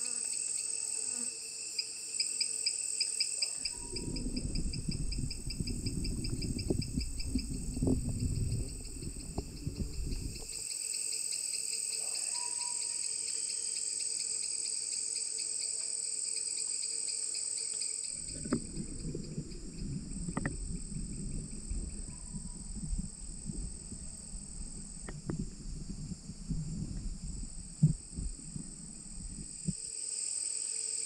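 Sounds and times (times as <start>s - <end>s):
insects trilling: 0.0s - 31.0s
low rumble: 3.7s - 10.6s, 18.1s - 29.8s.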